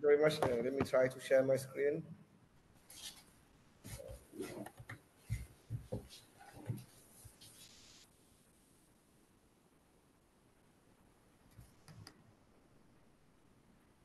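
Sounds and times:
soft handling taps and rubs: 0:00.3 - 0:01.0, 0:02.9 - 0:08.0.

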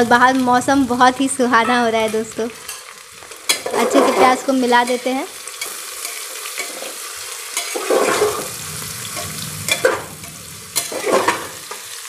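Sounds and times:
onions sizzling in oil: 0:00.0 - 0:12.0
spatula scraping pan: 0:03.5 - 0:05.0, 0:05.6 - 0:11.8.

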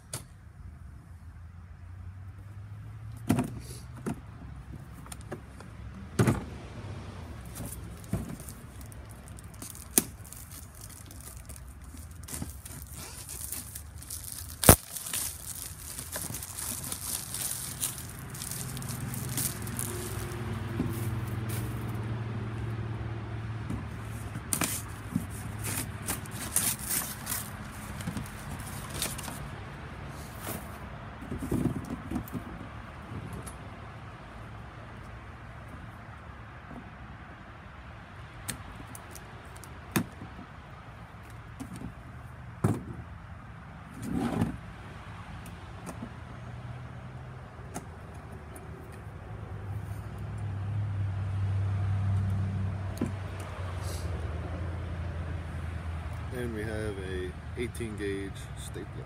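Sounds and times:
cardboard and plastic crackling: 0:07.4 - 0:21.9, 0:24.4 - 0:29.5.

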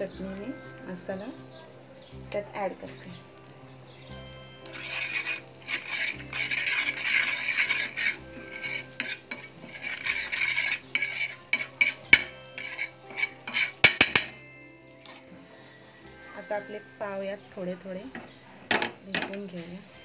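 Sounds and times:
spatula stirring: 0:00.0 - 0:14.4
butter sizzling on a pan: 0:00.0 - 0:20.0
metal spatula clinking on pan: 0:04.0 - 0:15.3.

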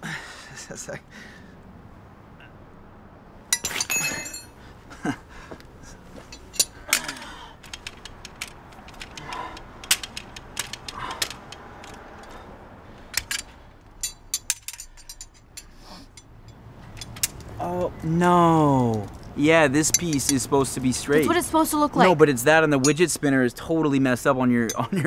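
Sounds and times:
metal tools clanking: 0:03.5 - 0:04.6, 0:05.8 - 0:18.0, 0:18.9 - 0:21.4, 0:22.8 - 0:23.3, 0:24.6 - 0:25.0.

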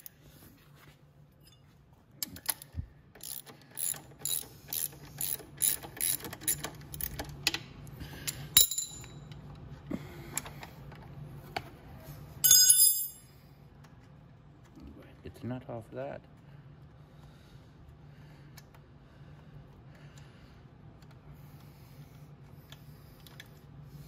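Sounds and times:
metallic ring: 0:01.4 - 0:01.7, 0:08.6 - 0:09.3, 0:12.4 - 0:13.3
socket ratchet clicking: 0:02.3 - 0:07.6.

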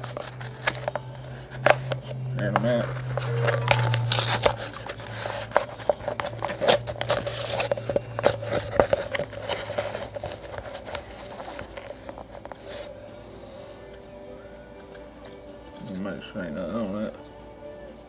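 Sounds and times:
paper envelope crinkling: 0:00.0 - 0:13.0.

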